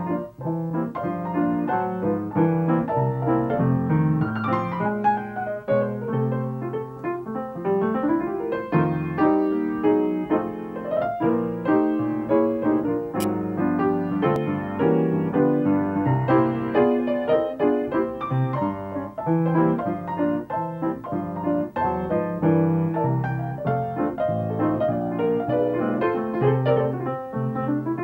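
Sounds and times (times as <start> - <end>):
piano playing: 0.0 - 28.0.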